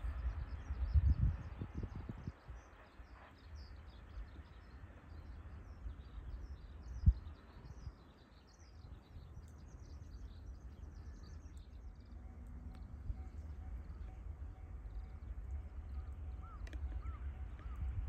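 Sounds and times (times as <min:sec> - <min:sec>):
low outdoor rumble: 0:08.8 - 0:18.0.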